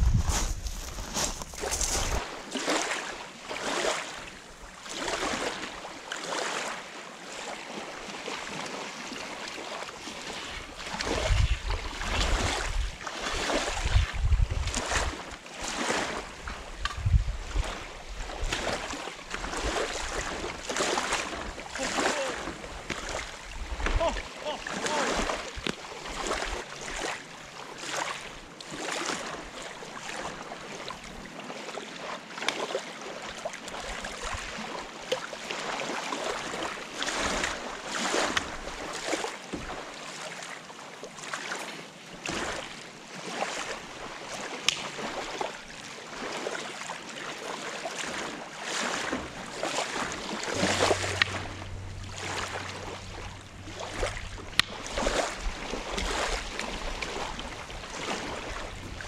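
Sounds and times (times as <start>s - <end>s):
waves washing on gravel: 0.0s - 5.8s, 10.2s - 16.8s, 17.5s - 29.5s, 48.0s - 59.0s
wind: 0.0s - 59.0s
low steady hum: 49.2s - 59.0s.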